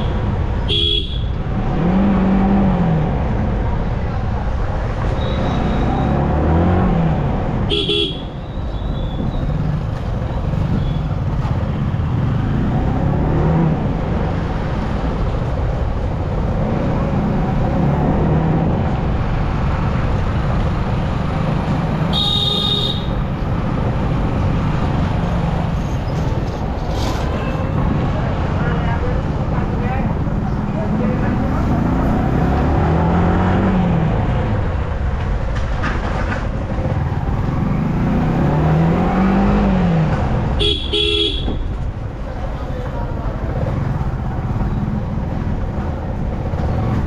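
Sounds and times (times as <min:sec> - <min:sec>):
vehicle horns honking: 0:00.0 - 0:01.3, 0:07.7 - 0:09.0, 0:22.1 - 0:23.2, 0:40.6 - 0:41.7.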